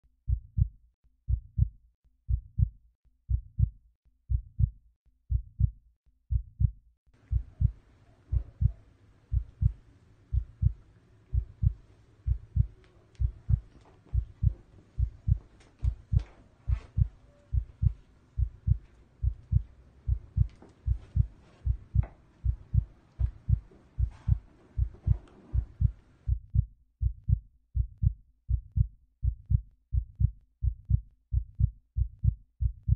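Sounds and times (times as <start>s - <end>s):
heartbeat thumps: 0.3s - 0.7s, 1.3s - 1.7s, 2.3s - 2.7s, 3.3s - 3.7s, 4.3s - 4.7s, 5.3s - 5.7s, 6.3s - 6.7s, 7.3s - 32.9s
faint background hiss: 7.2s - 26.3s
faint clicks: 11.7s - 16.5s.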